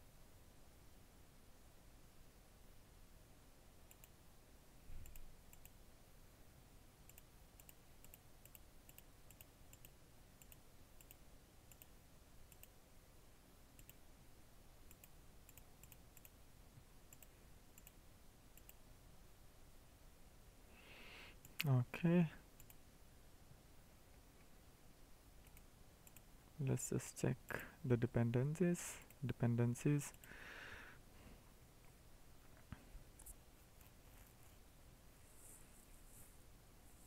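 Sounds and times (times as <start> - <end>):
computer mouse clicks: 3.9 - 4.2, 5.0 - 5.8, 7.1 - 12.8, 13.8 - 14.0, 14.9 - 16.4, 17.1 - 18.0, 18.6 - 18.8, 22.6 - 22.8, 25.4 - 26.3.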